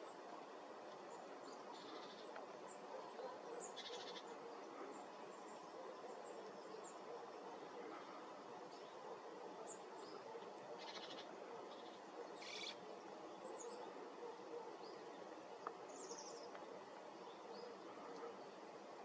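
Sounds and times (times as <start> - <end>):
faint outdoor hiss: 0.0 - 19.0
small birds chirping and trilling: 0.9 - 18.6.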